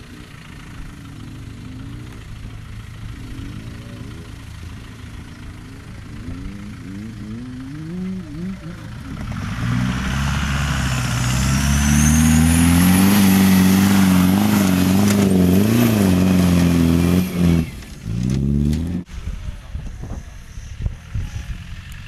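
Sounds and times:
engine revving hard: 0:06.1 - 0:19.0.

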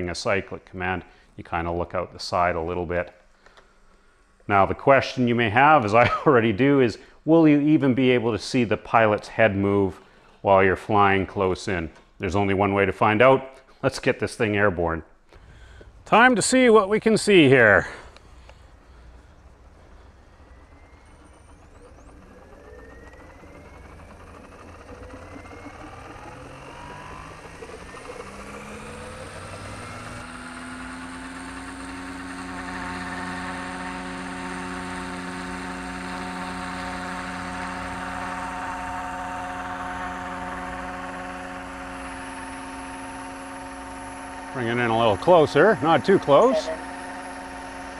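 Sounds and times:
model helicopter whine rising: 0:00.0 - 0:13.4, 0:14.1 - 0:47.9
helicopter rotor noise: 0:04.1 - 0:09.8, 0:15.4 - 0:47.9.

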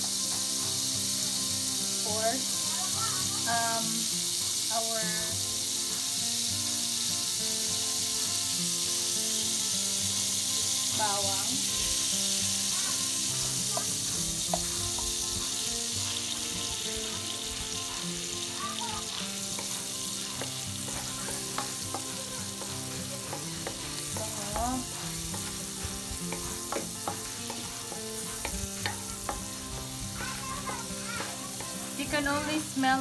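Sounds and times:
garlic sizzling in a wok: 0:00.0 - 0:33.0
spatula tapping and scraping pan: 0:13.4 - 0:15.4, 0:18.9 - 0:33.0.

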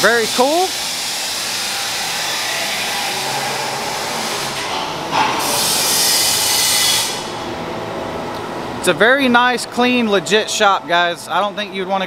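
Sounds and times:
machinery and air hiss: 0:00.0 - 0:11.1
loud sharp hiss: 0:05.4 - 0:07.3.

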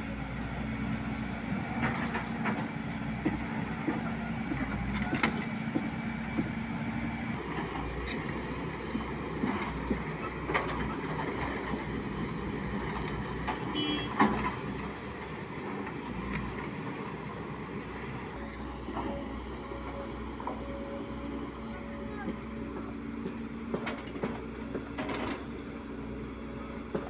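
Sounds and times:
excavator diesel engines running: 0:00.0 - 0:27.0
metallic clanks of buckets and tracks: 0:07.4 - 0:19.2.

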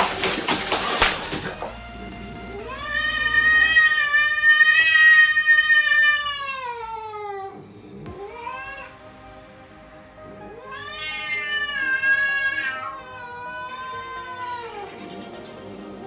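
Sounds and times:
cat meowing: 0:02.6 - 0:07.6, 0:10.5 - 0:14.9.

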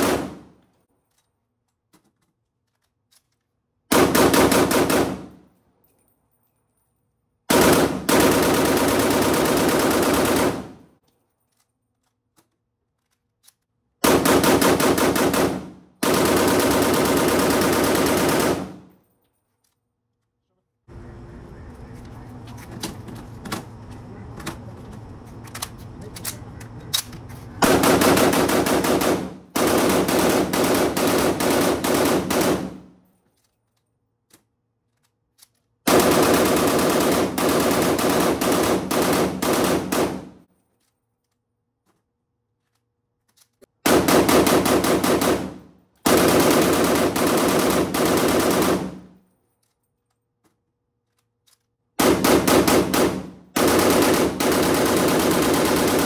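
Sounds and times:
rifle full-auto bursts: 0:00.0 - 0:00.6, 0:03.9 - 0:05.4, 0:07.5 - 0:11.0, 0:14.0 - 0:18.9, 0:27.6 - 0:33.0, 0:35.8 - 0:40.5, 0:43.8 - 0:49.2, 0:52.0 - 0:56.0.

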